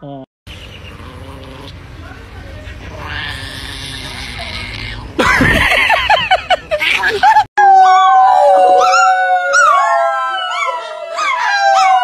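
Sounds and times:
small dog howling: 7.6s - 12.0s.

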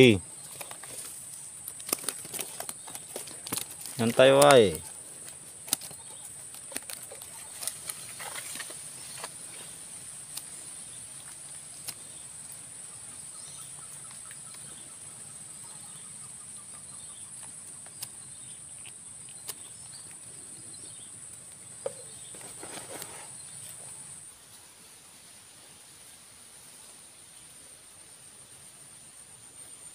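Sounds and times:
faint bird chirps: 5.8s - 24.2s.

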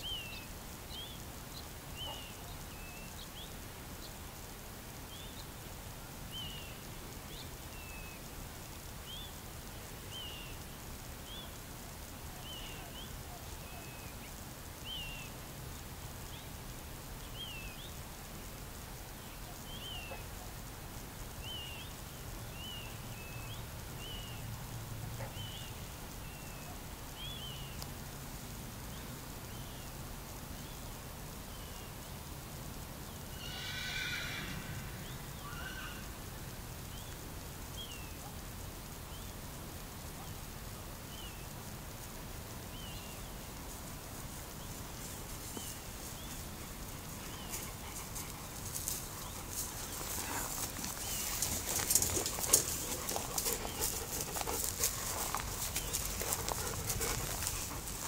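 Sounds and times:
high chirping animal calls: 33.3s - 36.2s.

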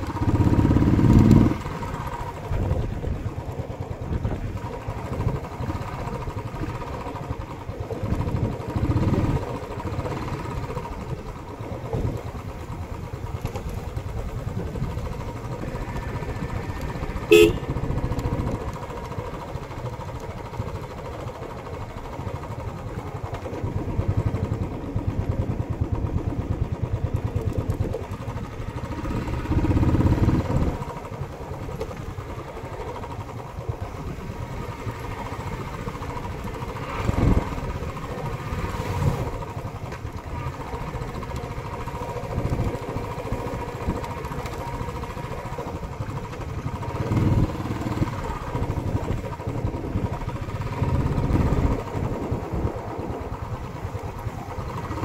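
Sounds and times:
motorcycle engine running: 0.0s - 55.0s
horn beep: 17.2s - 17.8s.

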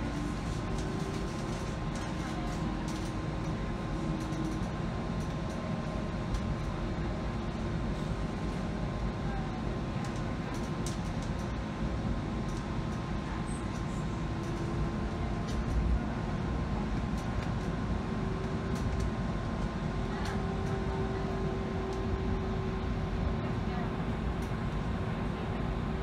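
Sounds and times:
light clicks and rattles: 0.7s - 3.6s, 10.0s - 11.6s.

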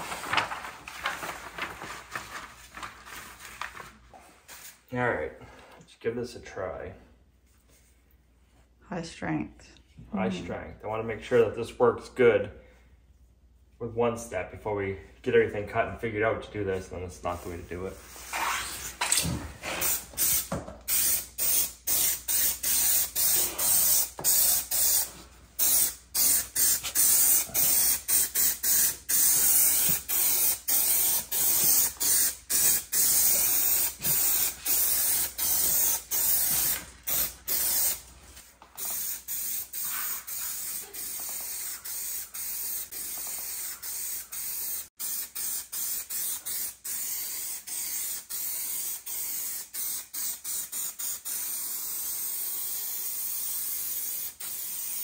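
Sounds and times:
aerosol can spraying in spurts: 19.8s - 38.0s, 38.8s - 55.0s.

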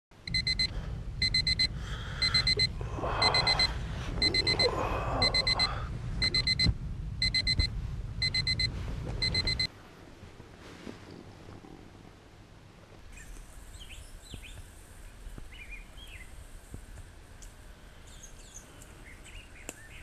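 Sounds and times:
low steady rumble: 0.1s - 19.6s
digital alarm clock beeping: 0.2s - 9.7s.

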